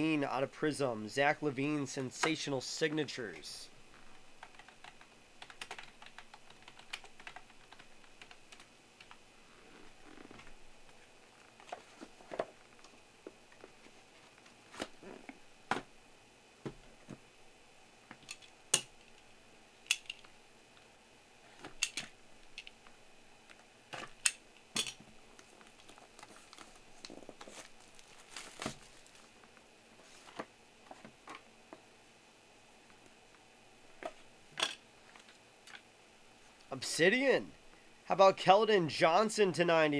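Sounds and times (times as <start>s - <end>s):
wrapper and cardboard crinkling: 25.4s - 29.4s.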